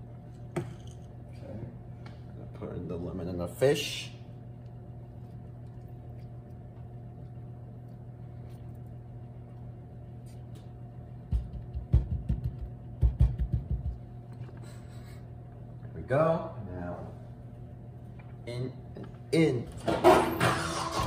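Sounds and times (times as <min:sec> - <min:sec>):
baking tray knocking on counter: 0:11.3 - 0:14.0.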